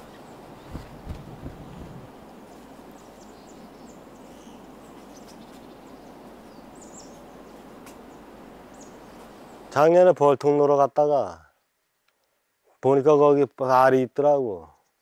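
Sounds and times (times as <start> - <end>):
steady outdoor hiss: 0.0 - 15.0
small bird chirps: 2.5 - 9.6.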